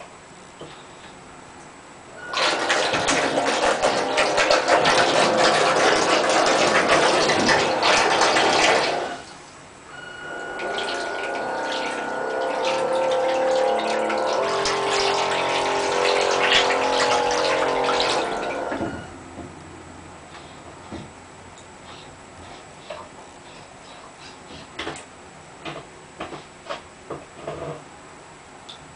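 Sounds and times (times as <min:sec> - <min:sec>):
water rushing from pump: 0:02.2 - 0:19.1
motor whine: 0:02.2 - 0:19.4.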